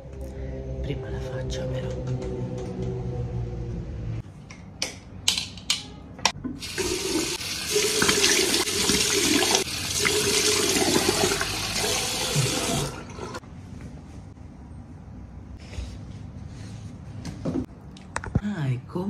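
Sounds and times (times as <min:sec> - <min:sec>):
tap running into washbasin: 0:06.5 - 0:13.4.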